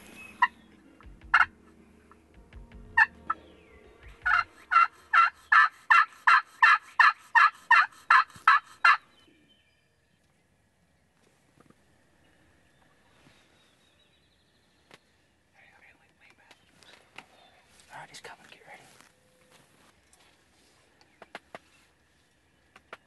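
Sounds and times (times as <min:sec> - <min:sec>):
turkey friction call clucks: 0:00.3 - 0:02.2, 0:03.0 - 0:03.4, 0:04.2 - 0:09.1
turkey call yelps: 0:01.3 - 0:01.5, 0:04.3 - 0:09.0.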